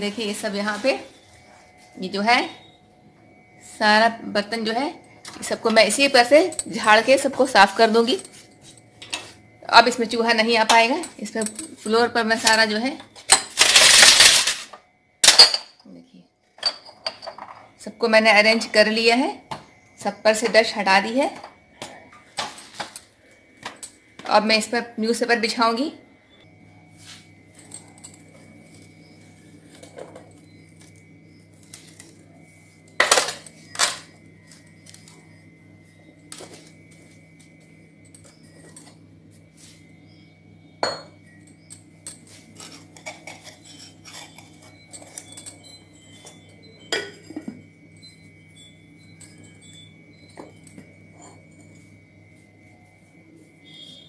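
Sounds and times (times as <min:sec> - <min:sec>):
pots and dishes clinking: 0:46.8 - 0:47.7.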